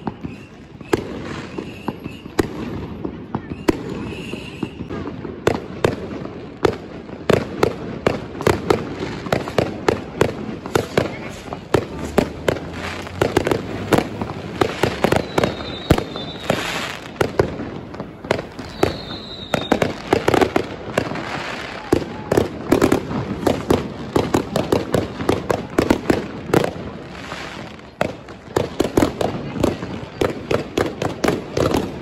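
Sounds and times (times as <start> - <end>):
high firework whistles: 0.0 - 5.2, 10.6 - 25.3
firecrackers banging and crackling: 0.0 - 32.0.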